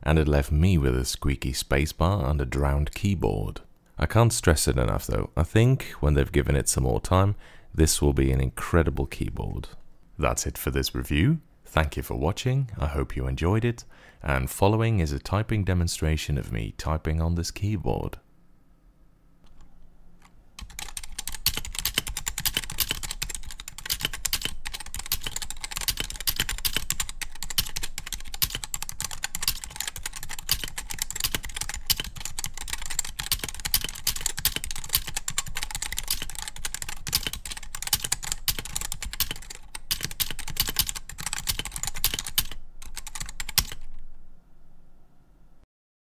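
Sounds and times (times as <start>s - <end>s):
keyboard typing: 19.5s - 44.0s.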